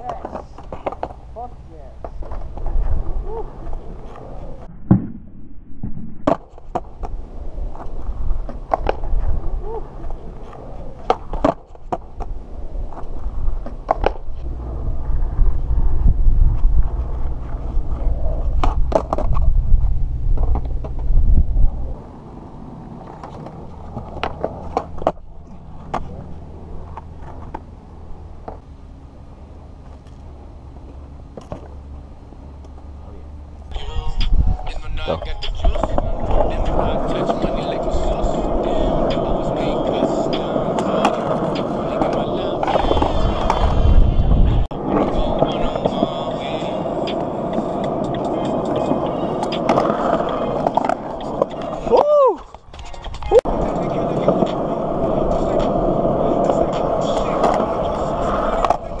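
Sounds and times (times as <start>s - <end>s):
skateboard clacking on ground: 0.0s - 4.7s, 6.2s - 14.5s, 16.8s - 19.5s, 22.9s - 28.6s, 29.8s - 31.9s, 34.7s - 43.8s, 44.7s - 59.0s
skateboard wheels rolling on concrete: 0.0s - 4.8s, 5.7s - 59.0s.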